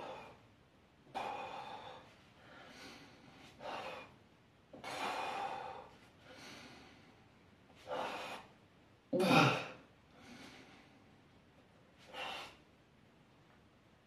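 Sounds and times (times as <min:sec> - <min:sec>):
man breathing hard: 0:01.1 - 0:04.2, 0:04.8 - 0:08.6, 0:10.1 - 0:11.2, 0:12.0 - 0:12.7.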